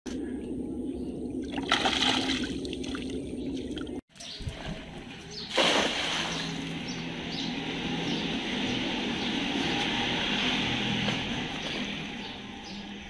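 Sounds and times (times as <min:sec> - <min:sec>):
net splashing on water: 0:05.5 - 0:06.6.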